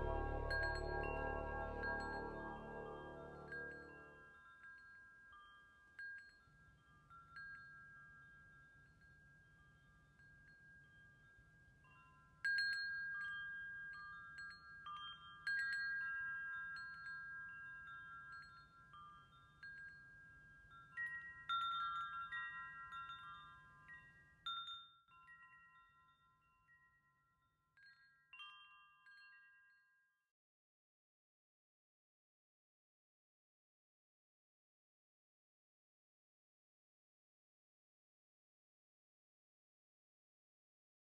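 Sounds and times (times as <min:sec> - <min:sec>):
wind chimes ringing: 0:00.0 - 0:09.9, 0:10.6 - 0:27.0, 0:27.8 - 0:30.0.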